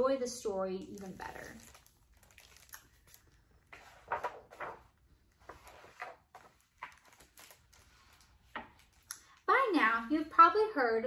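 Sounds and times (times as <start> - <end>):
book being handled: 0.9 - 9.1.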